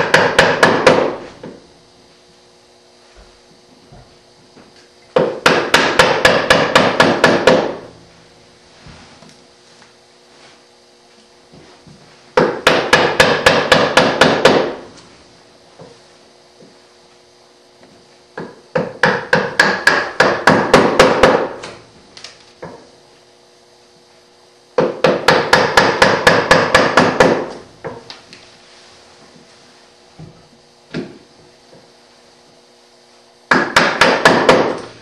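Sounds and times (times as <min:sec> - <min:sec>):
chisel struck chopping wood: 0:00.0 - 0:01.6, 0:05.1 - 0:07.9, 0:12.4 - 0:14.8, 0:18.4 - 0:21.8, 0:24.8 - 0:28.1, 0:30.9 - 0:31.2, 0:33.5 - 0:34.9.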